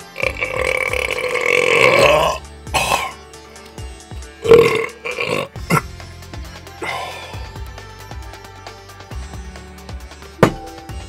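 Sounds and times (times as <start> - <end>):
man burping: 0.0 - 3.2, 4.4 - 5.9, 6.8 - 7.4.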